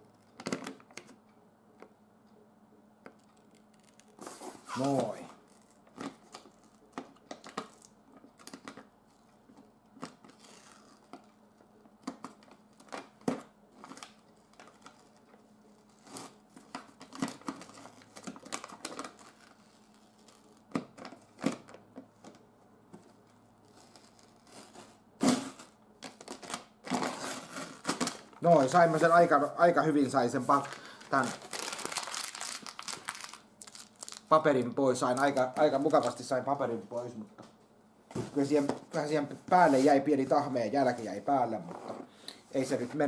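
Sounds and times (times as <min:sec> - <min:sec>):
adhesive paper peeling and tearing: 0:03.2 - 0:05.8
paper crinkle: 0:30.2 - 0:34.4, 0:35.0 - 0:36.3.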